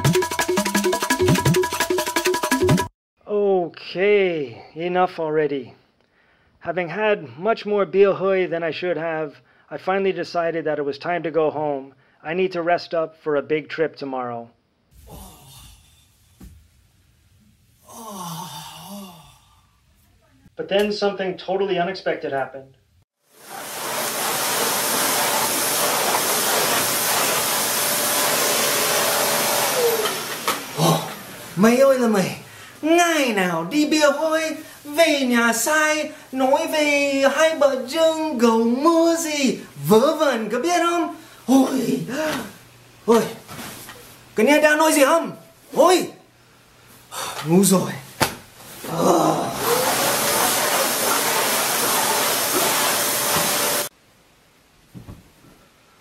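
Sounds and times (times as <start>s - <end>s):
vacuum cleaner motor running: 23.4s - 31.3s, 49.4s - 53.9s.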